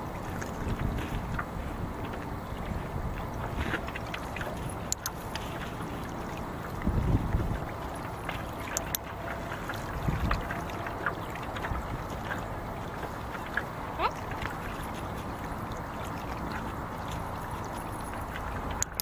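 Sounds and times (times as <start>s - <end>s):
clicks of water and stones: 0.0s - 19.0s
water lapping on pebbles: 0.0s - 19.0s.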